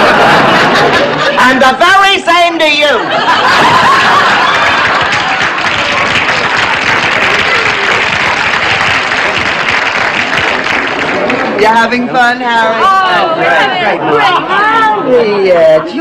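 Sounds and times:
studio audience applauding: 0:03.4 - 0:13.2
voices and laughs: 0:12.8 - 0:16.0.

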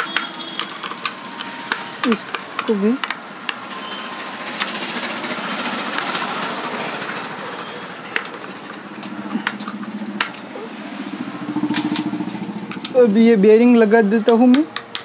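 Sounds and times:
workshop machine noise: 0:00.0 - 0:15.0
sharp metal clicks: 0:14.2 - 0:15.0.

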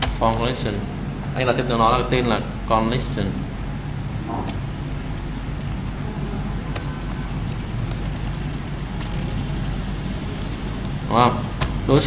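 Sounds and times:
low hum: 0:03.6 - 0:07.7.

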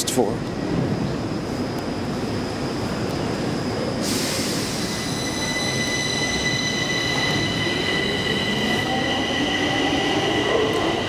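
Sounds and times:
hiss: 0:04.0 - 0:05.0.

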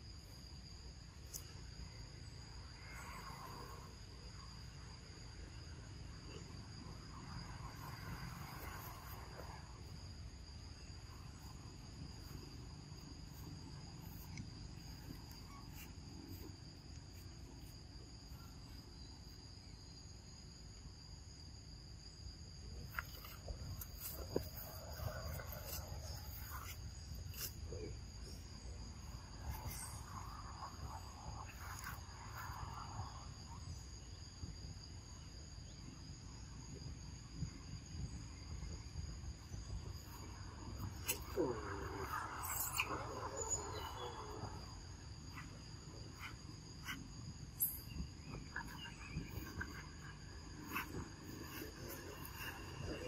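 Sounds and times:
insects chirring: 0:00.0 - 0:53.0.

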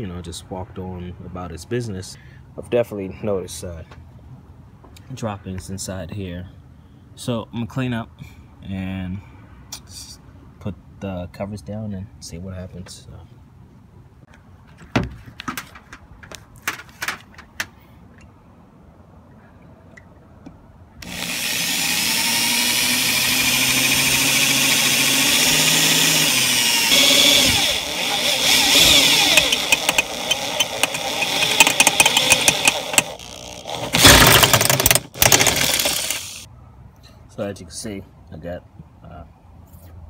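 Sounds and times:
power drill boring through metal: 0:21.0 - 0:36.5.

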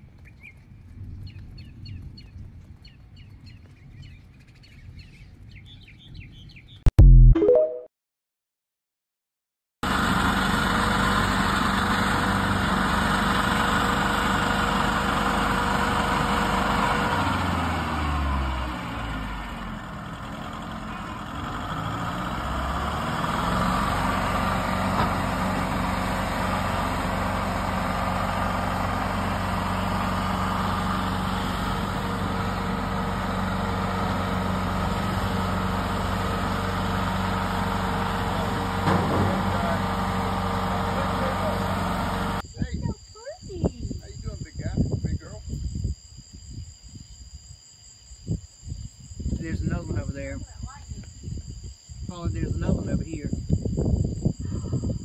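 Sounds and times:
stump grinder engine running: 0:09.8 - 0:42.4.

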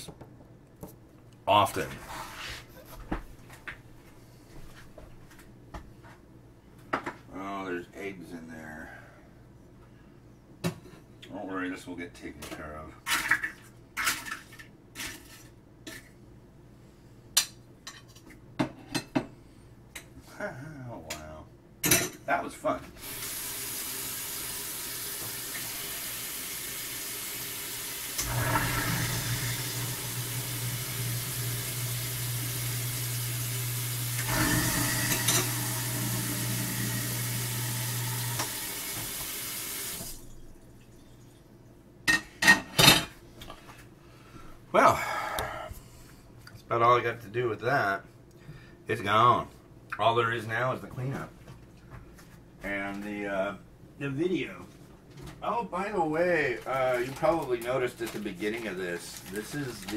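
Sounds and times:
faucet running: 0:23.0 - 0:41.0.

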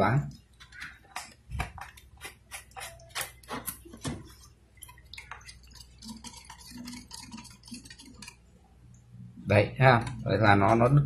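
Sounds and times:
stick scraping paint cup: 0:01.0 - 0:08.4.

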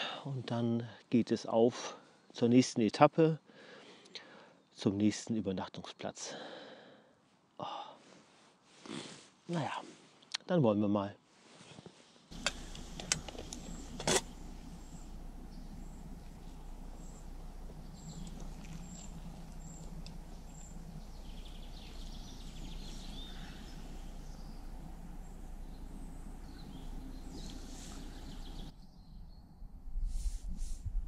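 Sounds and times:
low outdoor background: 0:00.0 - 0:31.0
faint bird chirps: 0:12.4 - 0:29.8
water pouring over coffee filter: 0:17.8 - 0:20.6.

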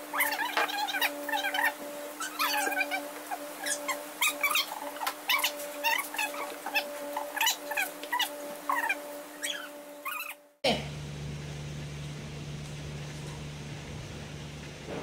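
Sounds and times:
steady hum: 0:00.0 - 0:15.0
animal high-pitched cries: 0:00.1 - 0:10.4.

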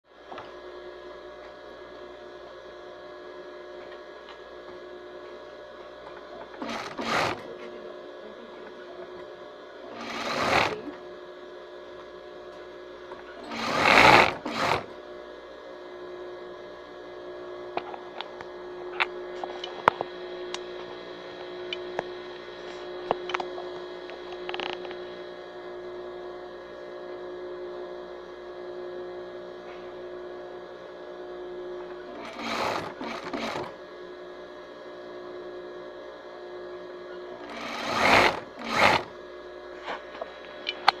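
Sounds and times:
steady hum: 0:00.1 - 0:41.0
sewing machine running: 0:06.5 - 0:07.5, 0:09.8 - 0:11.0, 0:13.4 - 0:15.0, 0:32.1 - 0:33.8, 0:37.4 - 0:39.2.

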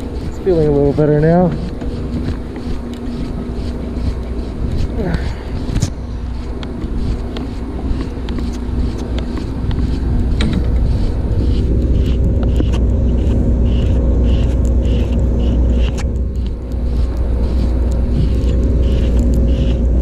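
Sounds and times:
boat motor idling: 0:00.0 - 0:20.0
fishing reel whirring: 0:00.0 - 0:20.0
wind on microphone: 0:00.0 - 0:20.0.

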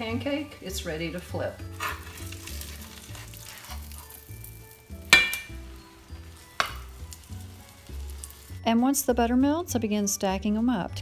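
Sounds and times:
batter sizzling in skillet: 0:00.0 - 0:09.6
soft background music: 0:00.0 - 0:11.0
metal spatula clinking on pan: 0:05.1 - 0:05.7, 0:06.6 - 0:07.0.

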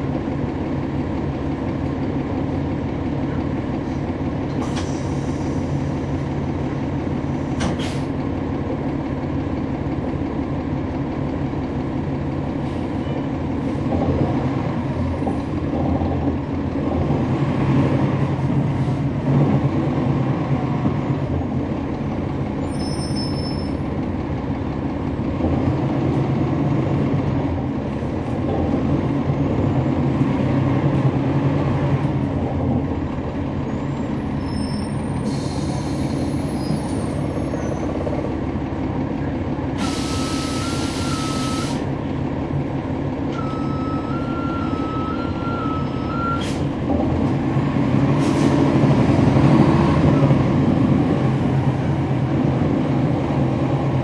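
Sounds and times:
bus diesel engine droning: 0:00.0 - 0:54.0
air brake hiss: 0:04.6 - 0:05.8, 0:07.6 - 0:08.2, 0:34.9 - 0:36.7, 0:39.8 - 0:41.9, 0:46.3 - 0:46.7, 0:48.2 - 0:48.6.

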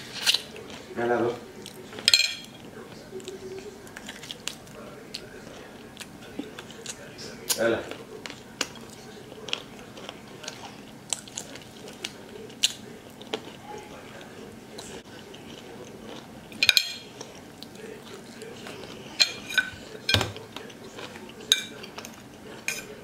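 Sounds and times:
chewing: 0:00.0 - 0:23.0
fork clinking on plate: 0:02.0 - 0:02.5, 0:16.6 - 0:17.2, 0:19.2 - 0:20.4, 0:21.5 - 0:23.0.

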